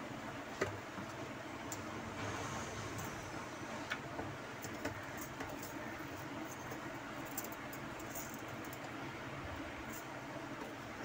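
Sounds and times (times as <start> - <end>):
steady low hum: 0.0 - 11.0
wire strands scratching and clicking: 3.9 - 9.0, 9.8 - 10.7.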